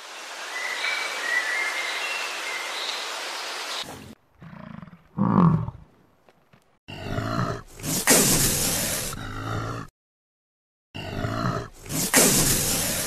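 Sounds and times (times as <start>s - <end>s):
steady hiss: 0.0s - 3.9s
bison grunting: 4.4s - 5.9s, 6.9s - 9.9s, 11.0s - 13.0s.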